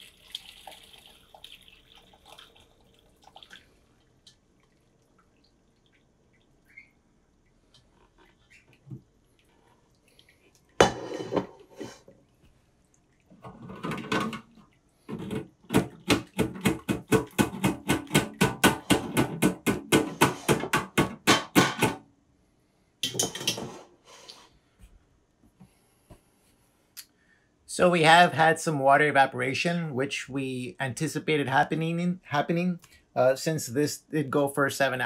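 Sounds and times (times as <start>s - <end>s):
metal pot clanking: 10.8s - 12.0s, 23.0s - 23.8s.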